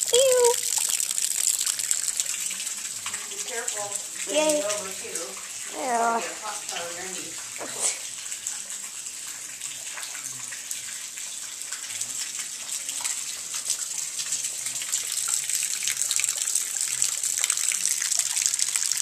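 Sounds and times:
dripping ticks: 0.0s - 8.6s, 12.6s - 19.0s
rain on wet concrete: 0.0s - 19.0s.

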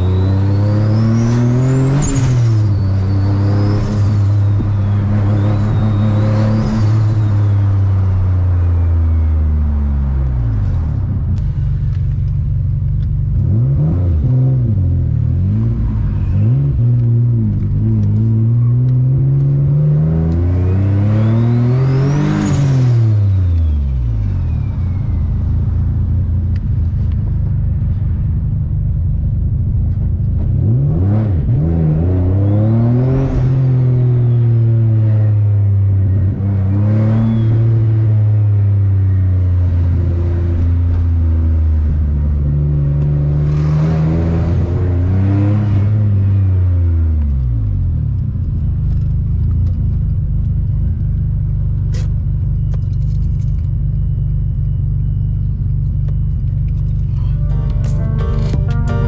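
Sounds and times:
turbo whistle: 0.0s - 7.7s
car engine revving: 0.0s - 24.4s, 29.0s - 47.0s.

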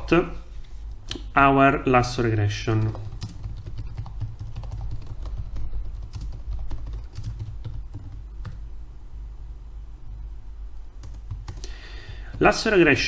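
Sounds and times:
typing on keyboard: 2.8s - 8.6s, 11.0s - 12.5s.

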